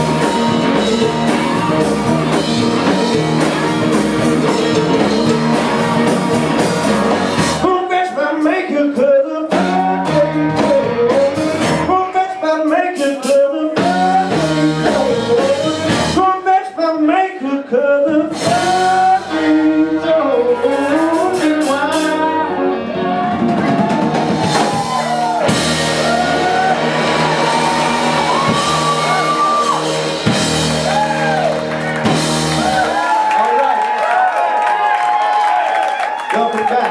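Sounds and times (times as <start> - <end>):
electric guitars: 0.0 - 7.9, 18.3 - 36.9
drum kit: 0.0 - 16.4, 18.2 - 22.4, 23.0 - 36.9
person singing: 0.0 - 25.3
bass guitar: 0.0 - 35.8.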